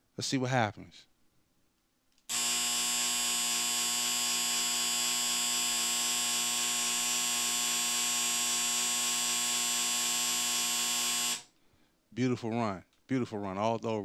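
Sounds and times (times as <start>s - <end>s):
game board electric buzz: 2.3s - 11.5s.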